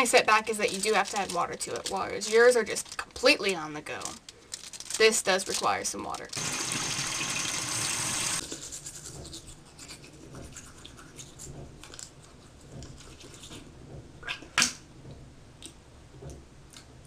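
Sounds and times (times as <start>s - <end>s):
toothbrush scratching on teeth: 8.4s - 13.7s.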